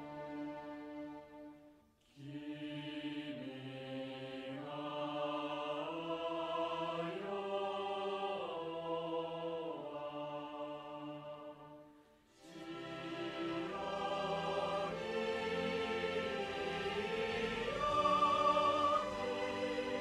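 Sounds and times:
choir singing long notes: 0.0 - 20.0
orchestral music: 12.4 - 20.0.

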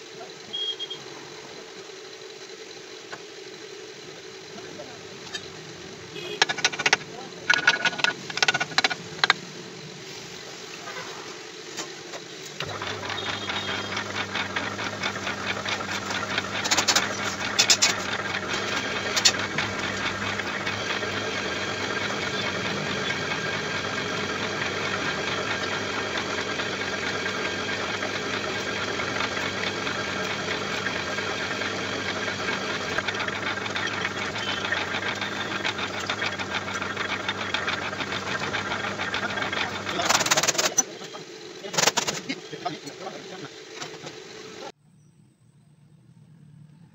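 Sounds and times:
lathe running: 0.0 - 44.7
sharp clicks or knocks: 6.4 - 9.4.

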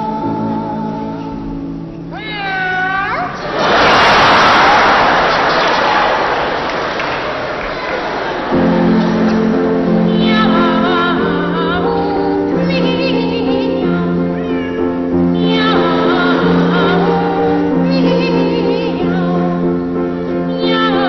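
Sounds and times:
boy singing with vibrato: 0.0 - 3.4, 9.9 - 21.0
sustained piano chords: 0.0 - 21.0.

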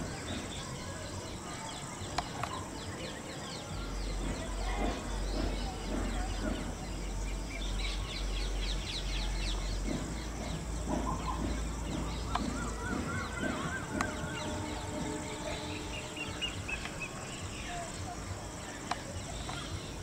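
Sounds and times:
birds chirping: 0.0 - 20.0
bird warbling call: 7.8 - 20.0.

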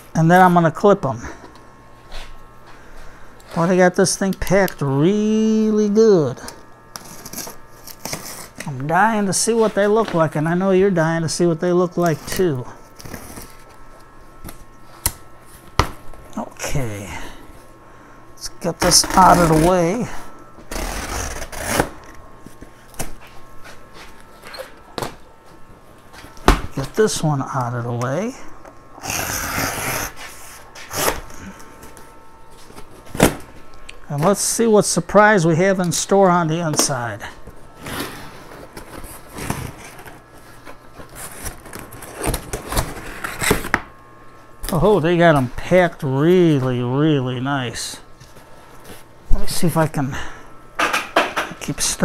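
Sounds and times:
cardboard scraping and rustling: 37.8 - 43.8.

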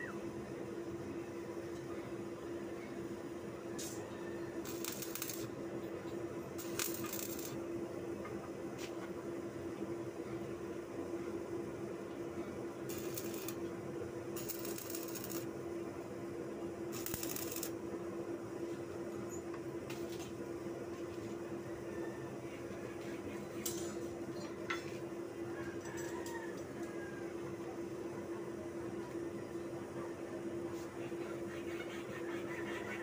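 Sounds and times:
steady hum: 0.0 - 25.5
welding arc crackling: 4.6 - 5.6, 6.6 - 7.6, 12.8 - 13.7, 14.3 - 15.5, 16.9 - 17.8.

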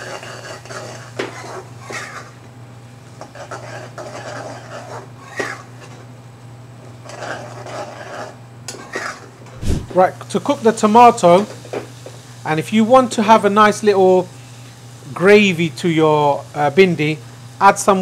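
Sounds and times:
metal spoon scraping metal pan: 0.0 - 2.3, 3.2 - 6.0, 7.0 - 9.3.

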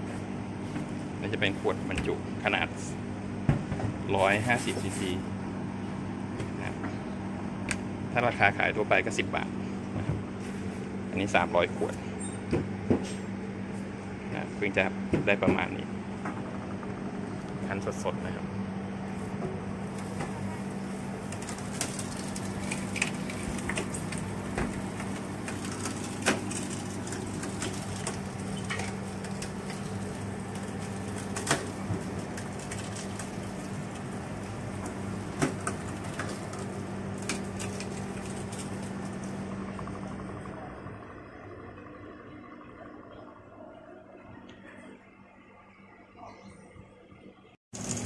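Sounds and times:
juice press motor hum: 0.0 - 46.2, 46.8 - 48.0
sugarcane stalks cracking: 21.3 - 39.3.

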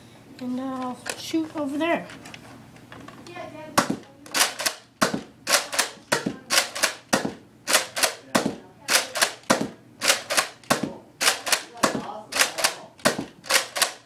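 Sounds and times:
toy dart blaster priming and firing: 4.3 - 8.2, 8.9 - 14.0.

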